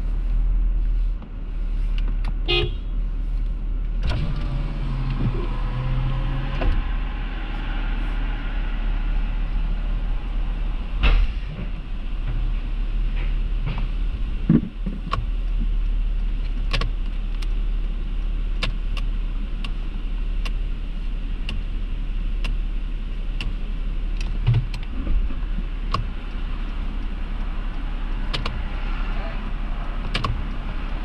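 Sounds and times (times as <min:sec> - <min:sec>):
vehicle engine idling: 0:00.0 - 0:31.0
low thump: 0:10.8 - 0:15.1
light ticks: 0:18.2 - 0:19.8, 0:20.4 - 0:20.6, 0:22.4 - 0:22.6.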